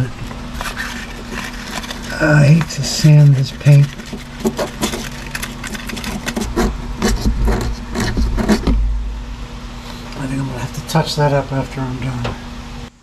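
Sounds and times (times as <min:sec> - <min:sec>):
sandpaper rubbing on metal: 0:00.6 - 0:08.7
low rumble: 0:06.4 - 0:12.7.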